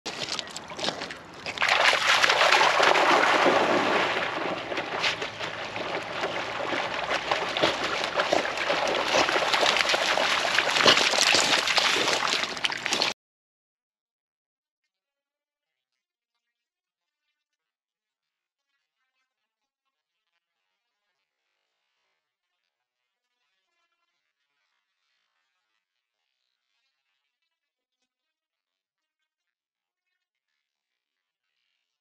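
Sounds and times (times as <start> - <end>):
dogs splashing through water: 0.1 - 13.2.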